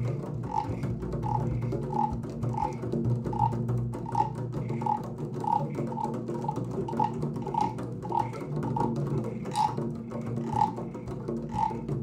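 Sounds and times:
hand drums light patter: 0.0s - 12.0s
hollow drum tap: 0.0s - 12.0s.

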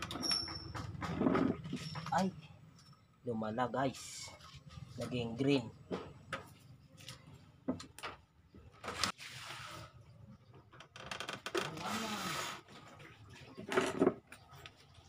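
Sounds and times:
rustling or scraping: 4.0s - 5.5s, 8.8s - 10.1s.

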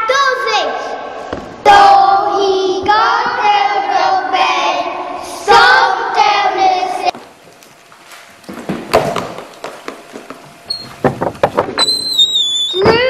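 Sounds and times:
children singing: 1.7s - 7.1s.

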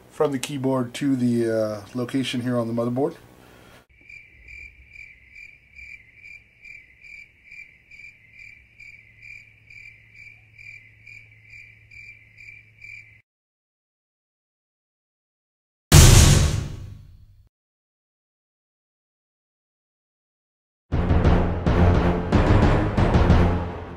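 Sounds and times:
cricket chirping: 3.9s - 13.2s.

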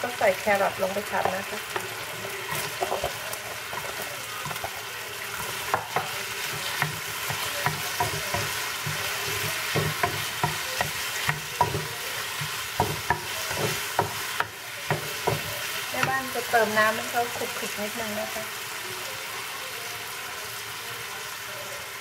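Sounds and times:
food sizzling in a frying pan: 0.0s - 22.0s
spatula scraping a pan: 0.4s - 17.7s.

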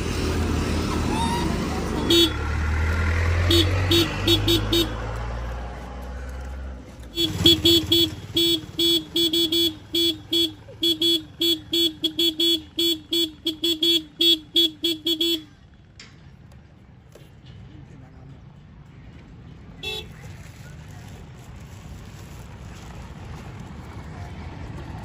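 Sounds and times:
low engine rumble: 0.0s - 25.0s
vehicle horn short beeps: 1.2s - 2.4s, 3.4s - 5.0s, 7.1s - 15.5s.

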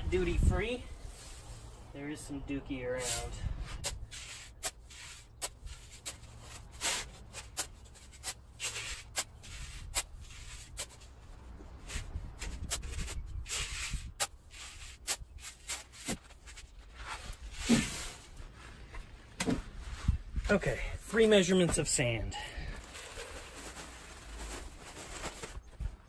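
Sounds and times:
spade scraping into sand: 3.0s - 11.1s, 11.8s - 18.4s.

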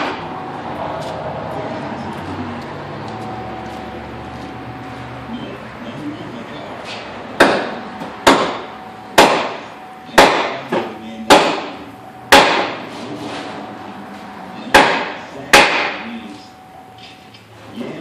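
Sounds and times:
sledgehammer striking metal: 0.0s - 0.3s, 7.4s - 10.7s, 11.3s - 12.9s.

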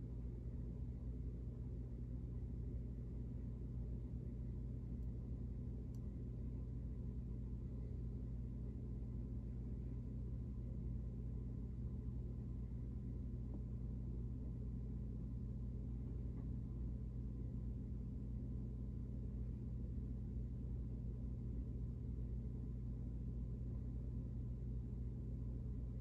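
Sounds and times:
steady low hum: 0.0s - 26.0s
small tick: 5.9s - 6.1s.

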